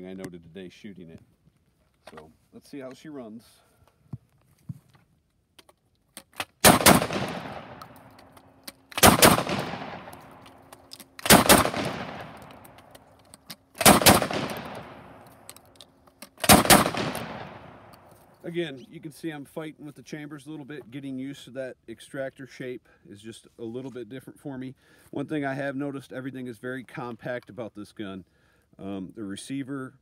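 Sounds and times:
gun handling clicks: 0:05.6 - 0:18.3
shotgun shots: 0:06.6 - 0:08.2, 0:08.9 - 0:10.6, 0:11.2 - 0:12.8, 0:13.8 - 0:15.4, 0:16.4 - 0:17.9.

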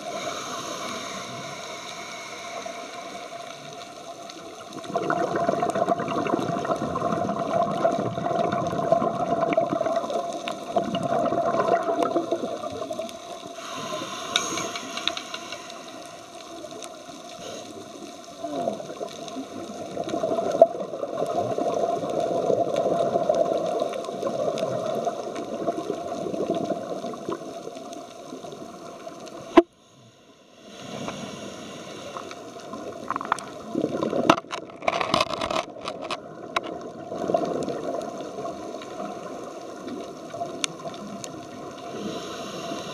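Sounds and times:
diver breathing through regulator: 0:00.0 - 0:04.0, 0:13.5 - 0:16.6, 0:29.8 - 0:32.7, 0:41.8 - 0:42.9
bubbling exhalation: 0:04.8 - 0:12.8.

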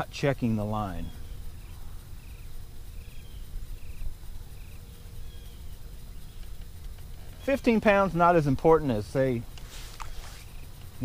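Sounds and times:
cricket chirping: 0:00.0 - 0:11.0
low steady rumble: 0:00.0 - 0:11.0.

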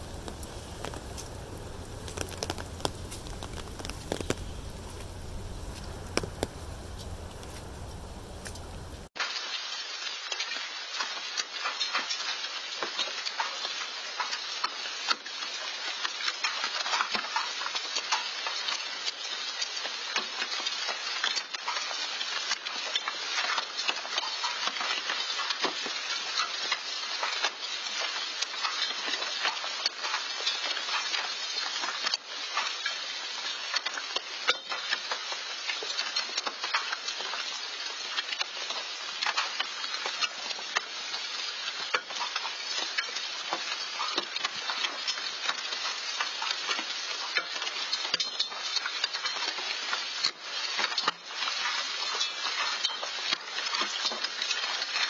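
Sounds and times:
hail and rain falling: 0:00.0 - 0:55.0.

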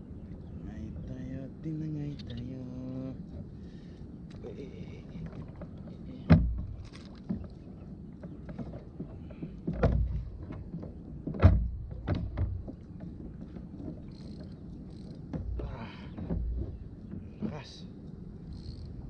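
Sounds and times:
thumps on plastic kayak hull: 0:09.7 - 0:12.8.

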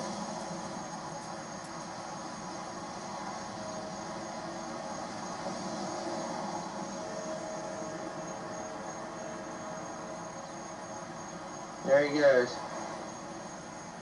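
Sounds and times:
distant diesel locomotive rumble: 0:00.0 - 0:14.0.

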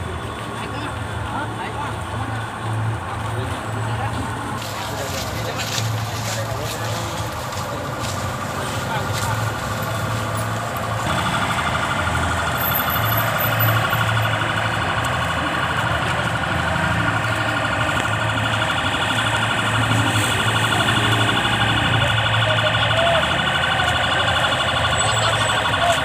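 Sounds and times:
warbling electronic siren: 0:11.0 - 0:26.0.

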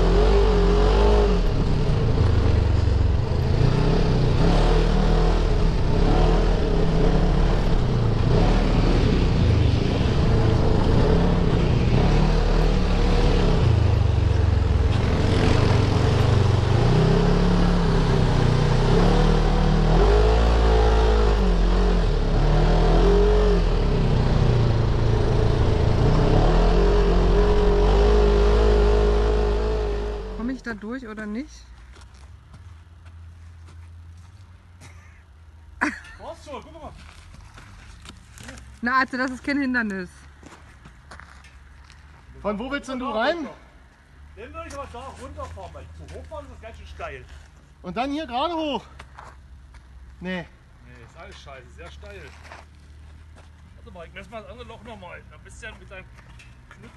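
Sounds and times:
buggy engine revving under load: 0:00.0 - 0:30.8.

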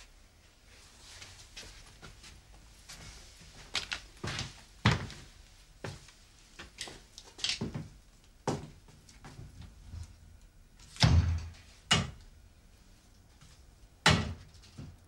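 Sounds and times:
kitchen knocks and clatters: 0:14.0 - 0:15.0.

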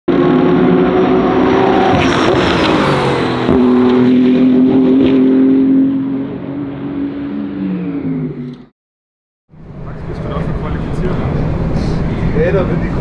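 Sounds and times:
race car engine at high revs: 0:00.1 - 0:08.7.

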